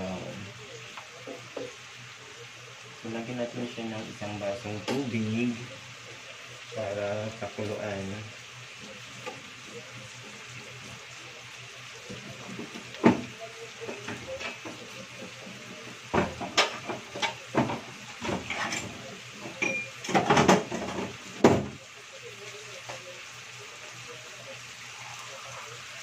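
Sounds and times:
meat sizzling in a frying pan: 0.0s - 26.0s
kitchenware knocking and clattering: 16.1s - 21.8s.

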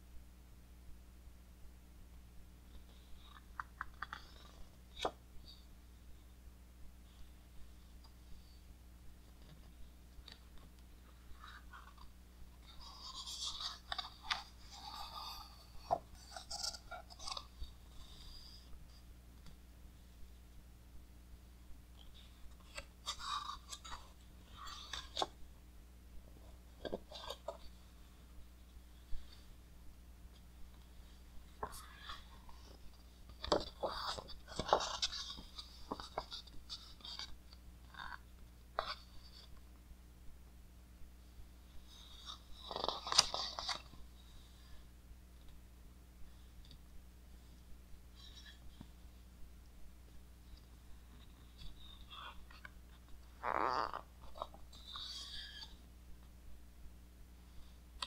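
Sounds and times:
book pages rustling: 2.7s - 5.2s, 9.3s - 18.7s, 22.0s - 25.4s, 26.4s - 29.6s, 30.3s - 38.2s, 41.9s - 44.0s
stiff paper page rustling: 31.6s - 37.4s.

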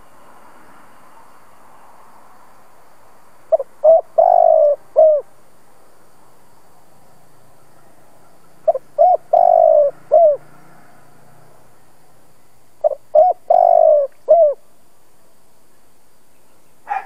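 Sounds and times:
dove cooing: 3.5s - 5.3s, 8.6s - 10.5s, 12.8s - 14.6s.

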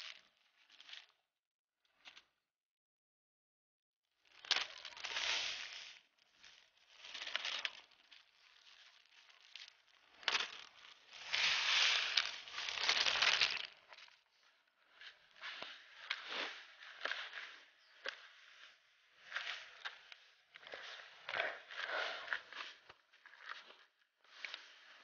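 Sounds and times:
dry bait rustling in bucket: 4.3s - 14.2s.

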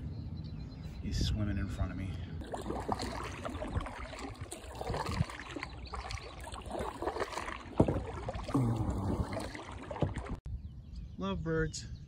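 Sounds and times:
kayak paddle strokes in water: 2.4s - 10.4s
water drips and splashes: 2.4s - 10.4s.

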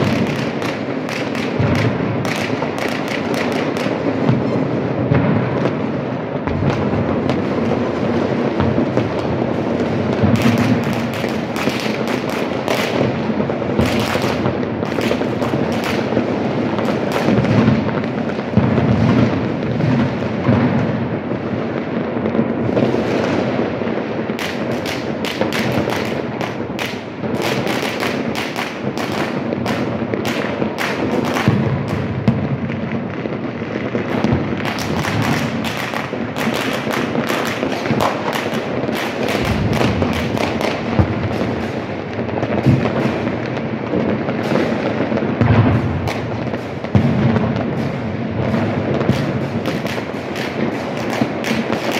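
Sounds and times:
sharp firecracker cracks: 0.0s - 4.4s, 10.1s - 20.7s, 24.4s - 32.4s, 33.3s - 51.9s
rumble of distant fireworks: 0.0s - 51.9s.

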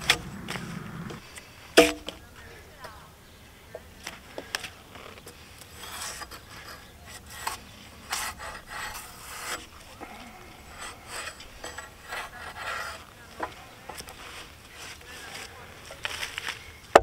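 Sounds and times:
tool scraping bark off log: 5.0s - 15.0s.

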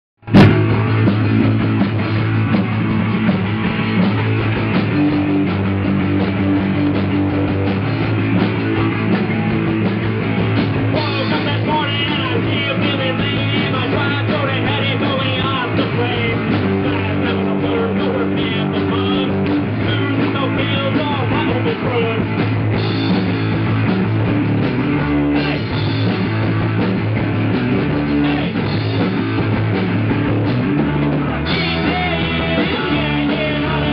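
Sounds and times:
rock band playing live: 0.2s - 33.9s
person singing: 10.9s - 22.3s, 28.1s - 28.6s, 31.4s - 33.9s.

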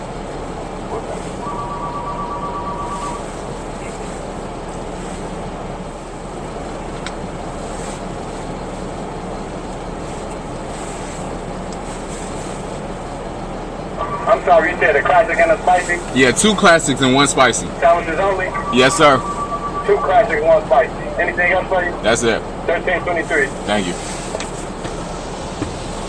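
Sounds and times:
car engine idling: 0.0s - 26.0s
car heater fan blowing: 0.0s - 26.0s
two-tone electronic beep: 1.4s - 3.2s, 18.5s - 20.4s.

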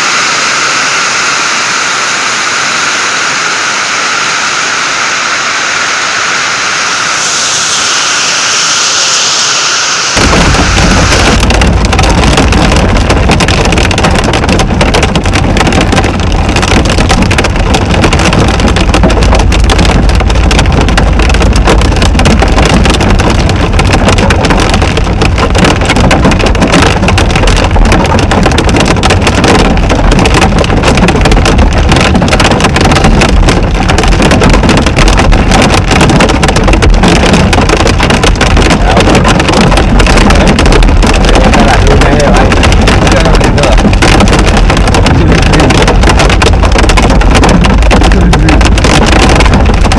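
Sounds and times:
heavy rain drumming on car roof: 0.0s - 49.9s
low rumble: 0.0s - 49.9s.

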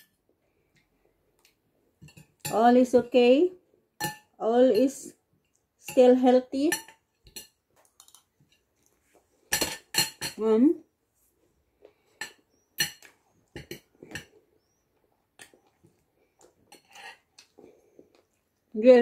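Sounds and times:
cutlery clinking on glass bowl: 2.0s - 2.7s, 4.0s - 5.0s, 5.9s - 8.6s, 9.5s - 10.4s, 12.2s - 14.4s.

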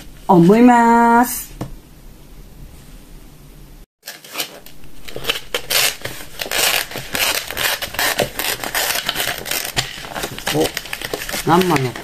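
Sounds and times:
plastic packaging crinkling: 4.0s - 12.0s.

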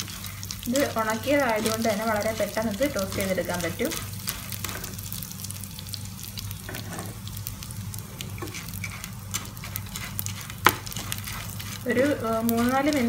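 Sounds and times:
spatula scraping pan: 0.0s - 5.0s, 6.7s - 7.2s, 8.3s - 13.0s
fish sizzling in oil: 0.0s - 13.0s.

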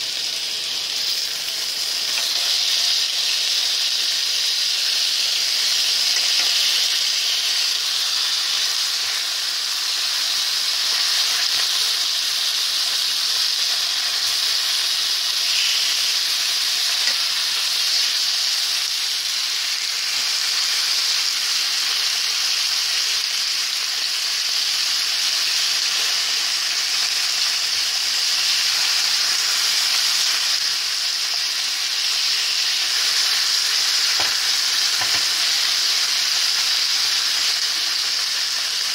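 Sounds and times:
meat sizzling in frying pan: 0.0s - 38.9s.

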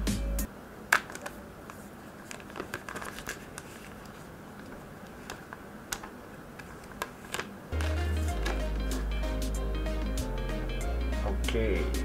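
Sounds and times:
plastic film crinkling: 1.0s - 8.7s.

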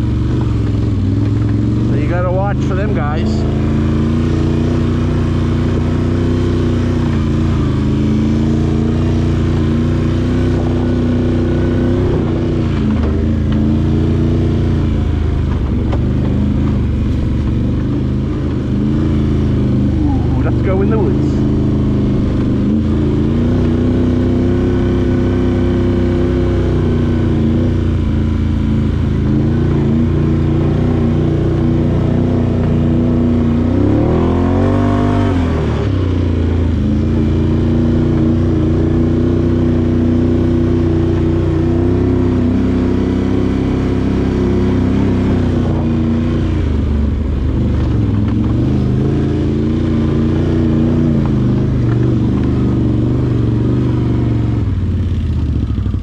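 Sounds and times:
atv engine running: 0.0s - 56.0s.

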